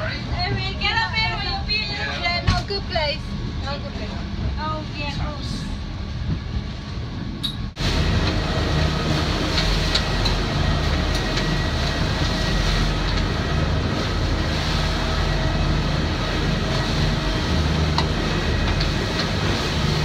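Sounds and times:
boat low rumble: 0.0s - 20.0s
water rushing in wake: 7.7s - 20.0s.

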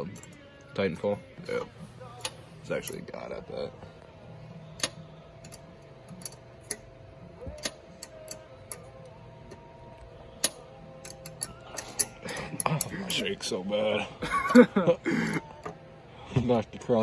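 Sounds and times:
wrench clicking on metal nuts: 4.8s - 6.9s, 7.5s - 8.9s, 10.4s - 13.2s.

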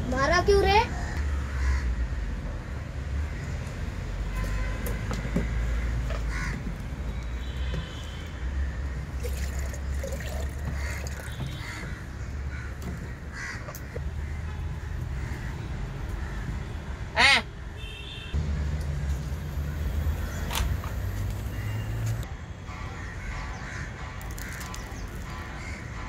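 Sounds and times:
crows cawing: 0.9s - 2.2s, 5.4s - 6.8s, 8.6s - 15.6s, 22.9s - 26.0s.

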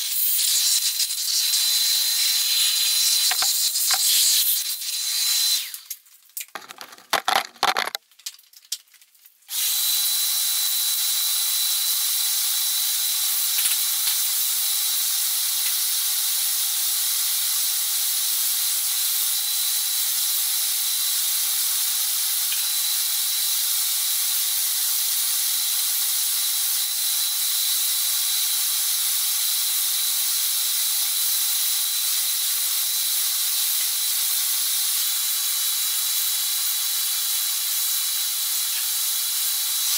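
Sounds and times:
short clatters: 6.4s - 8.0s.

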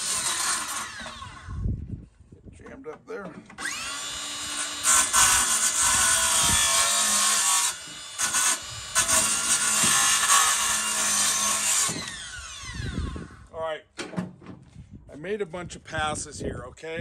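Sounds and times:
circular saw cutting wood: 0.0s - 1.6s, 3.6s - 13.4s.

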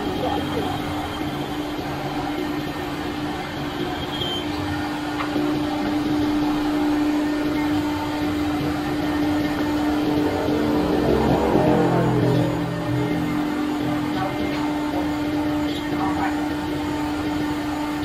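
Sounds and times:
router machine hum: 5.4s - 18.0s.

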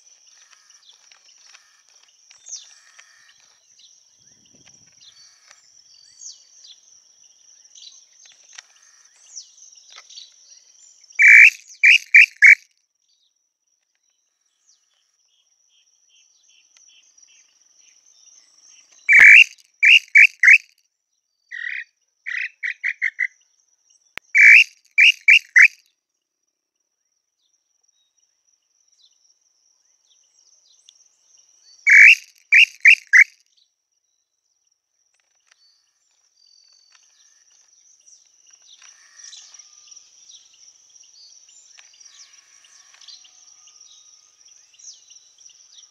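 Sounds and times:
high insect trill: 0.0s - 12.7s, 14.5s - 20.7s, 24.3s - 25.8s, 27.9s - 33.4s, 35.4s - 45.9s
bird whistled calls: 11.2s - 12.6s, 19.1s - 20.7s, 21.6s - 23.3s, 24.4s - 25.8s, 31.9s - 33.3s.

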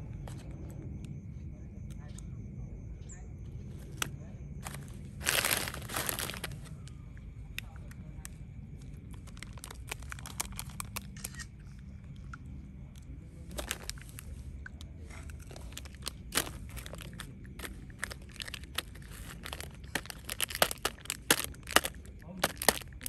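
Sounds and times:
foil wrappers crinkling: 4.0s - 6.7s, 9.1s - 11.4s, 13.5s - 14.4s, 15.4s - 23.0s
monkey crunching wafer cone: 15.4s - 23.0s.

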